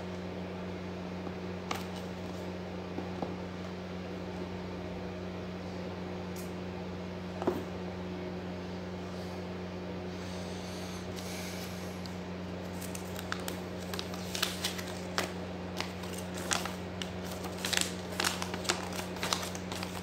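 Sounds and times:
steady low hum: 0.0s - 20.0s
paper crinkling: 12.6s - 20.0s.

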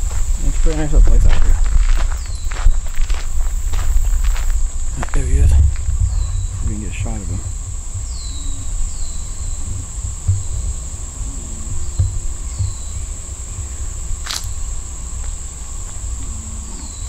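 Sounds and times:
insects droning: 0.0s - 17.0s
low rumble with thumps: 0.0s - 17.0s
sharp click: 14.3s - 14.6s.

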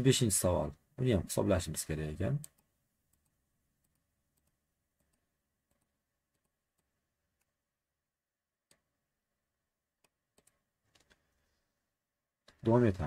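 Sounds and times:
computer mouse clicks: 2.4s - 7.6s, 8.6s - 9.0s, 10.0s - 11.4s.

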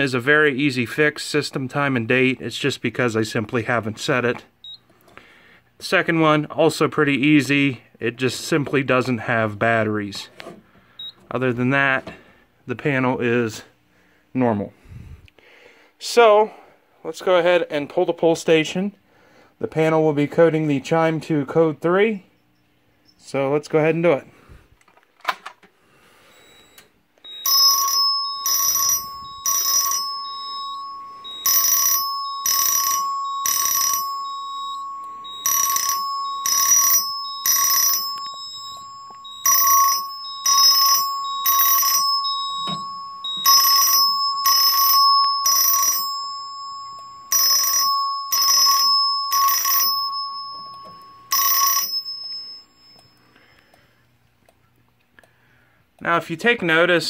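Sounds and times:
fire alarm chime strikes: 27.2s - 53.8s
steady high tone: 27.2s - 53.9s.

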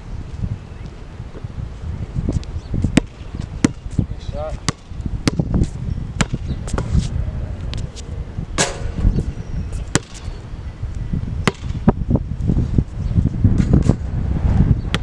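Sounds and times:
wind on microphone: 0.0s - 15.0s
basketball bouncing: 3.0s - 4.0s, 4.6s - 5.6s, 6.2s - 6.8s, 9.9s - 10.3s, 11.4s - 11.8s.

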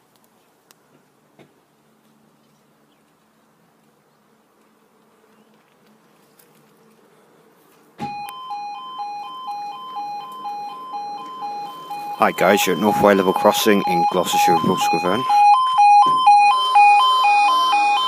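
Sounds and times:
two-tone crossing alarm: 8.0s - 18.0s.

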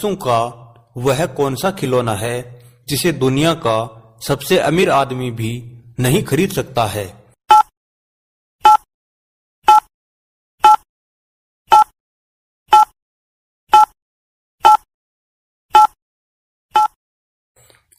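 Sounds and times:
short electronic beeps: 7.5s - 7.7s, 8.6s - 8.9s, 9.6s - 9.9s, 10.6s - 10.8s, 11.7s - 11.9s, 12.7s - 13.0s, 13.7s - 14.0s, 14.6s - 14.9s, 15.8s - 16.0s, 16.8s - 17.0s.

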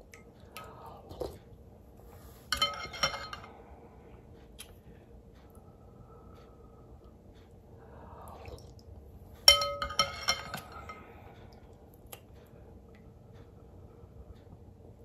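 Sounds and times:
metal spoon clinking on glass bowl: 2.5s - 3.5s, 9.5s - 10.8s.

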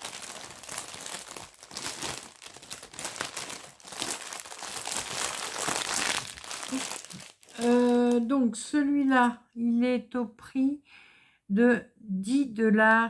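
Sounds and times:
plastic packaging crinkling: 0.0s - 8.3s.

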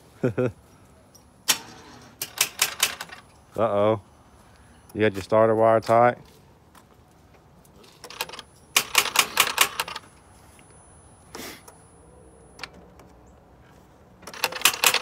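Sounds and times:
starter solenoid clicking: 8.0s - 10.1s, 14.2s - 15.0s.

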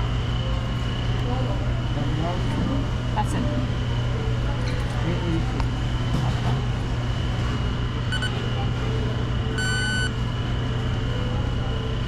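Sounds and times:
steady low hum: 5.4s - 12.0s
card terminal beeping: 8.1s - 8.5s, 9.6s - 10.2s.

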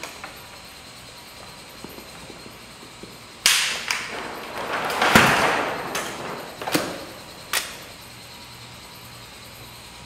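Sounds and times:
ball rolling on wooden track: 1.3s - 7.8s.

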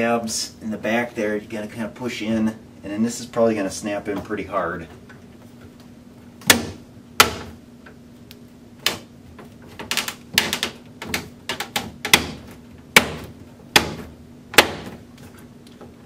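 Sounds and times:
plastic clicks and knocks: 8.8s - 12.2s.

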